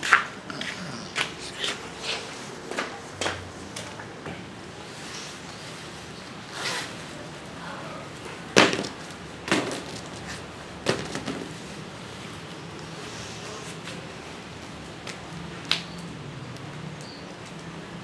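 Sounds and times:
packages knocking on glass table: 8.6s - 10.1s, 10.8s - 11.5s.

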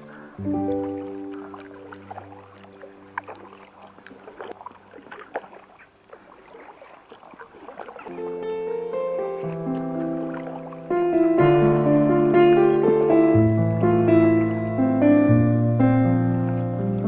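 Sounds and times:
music: 0.0s - 3.5s, 8.1s - 17.0s
water dripping: 0.0s - 15.7s
paddle splashing in water: 0.0s - 17.0s.

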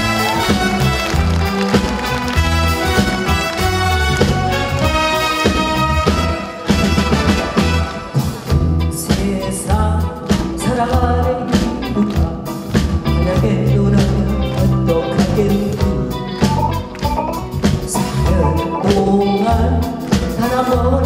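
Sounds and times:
live band playing: 0.0s - 21.0s
woman singing: 8.9s - 16.6s, 17.9s - 21.0s.

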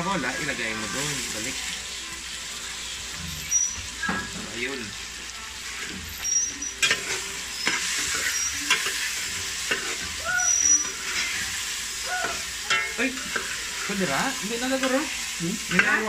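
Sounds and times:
meatballs sizzling in a pot: 0.0s - 16.0s
utensil scraping a metal pot: 3.1s - 4.3s, 5.8s - 16.0s.

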